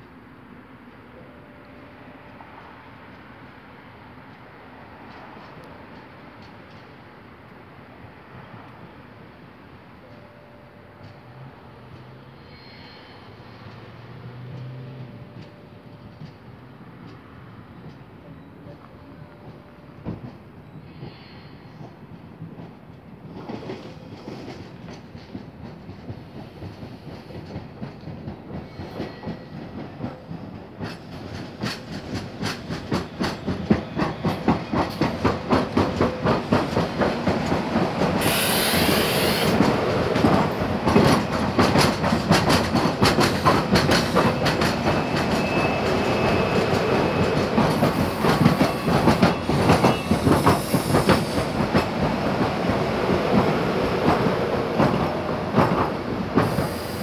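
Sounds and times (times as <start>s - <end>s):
train wheels pounding: 21.8s - 57.0s
brief hiss: 38.2s - 39.6s.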